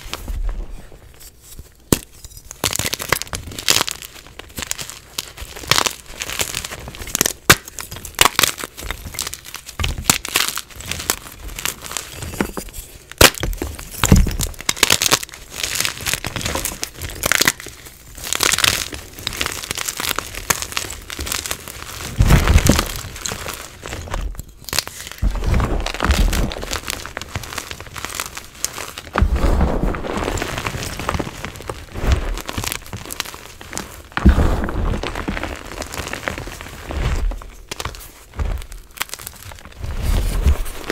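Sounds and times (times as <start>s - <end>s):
chalk crunching and snapping: 1.1s - 40.9s
heavy thumps: 25.2s - 27.4s, 29.1s - 30.4s, 34.1s - 35.7s.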